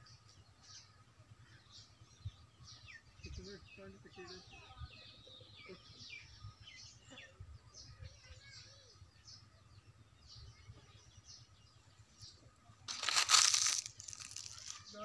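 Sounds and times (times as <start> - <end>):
loud rustling hiss: 12.9 - 14.9.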